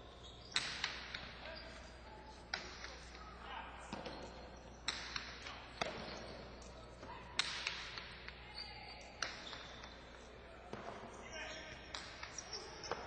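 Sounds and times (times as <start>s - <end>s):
ball cracking against walls: 4.8s - 6.2s.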